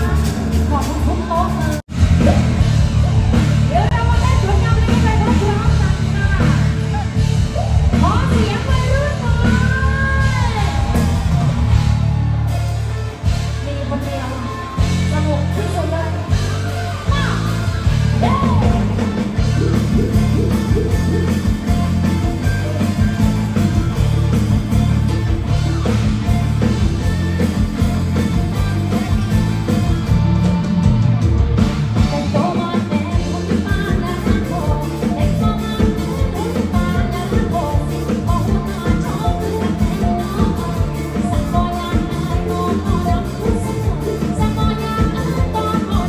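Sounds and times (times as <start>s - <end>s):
live band music: 0.0s - 46.0s
heavy bass beat: 18.1s - 32.2s
person singing: 32.0s - 46.0s.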